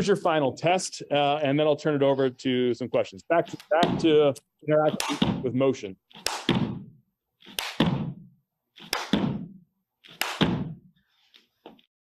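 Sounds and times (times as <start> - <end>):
hands clapping and slapping floor: 4.9 - 5.4, 6.2 - 6.8, 7.4 - 8.2, 8.8 - 10.8.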